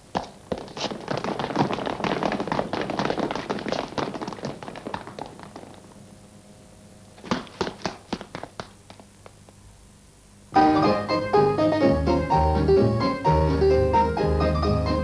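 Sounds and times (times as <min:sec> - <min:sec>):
running footsteps on pavement: 0:00.0 - 0:05.9, 0:07.2 - 0:09.4.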